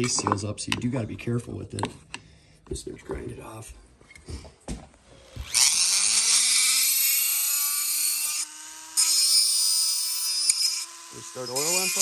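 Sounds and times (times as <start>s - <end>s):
rotary tool whining and grinding plastic: 5.1s - 7.3s, 8.0s - 12.0s.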